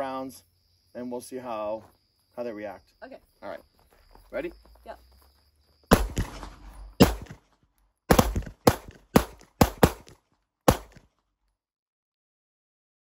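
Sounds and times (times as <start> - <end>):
pistol shots: 5.9 - 7.5, 8.1 - 11.1.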